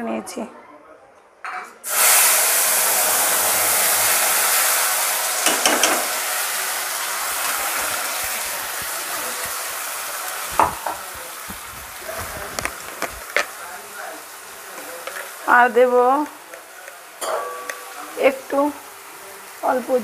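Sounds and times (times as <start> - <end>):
paste sizzling in hot oil: 1.9 - 20.0
spatula scraping and tapping: 5.4 - 6.1, 10.5 - 13.5.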